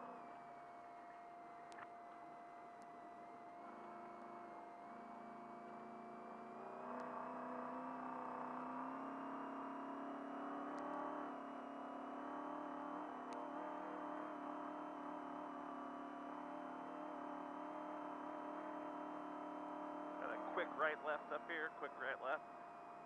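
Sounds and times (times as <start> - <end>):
thin whine rising in pitch: 3.0 - 21.6
truck engine running strongly: 16.2 - 22.4.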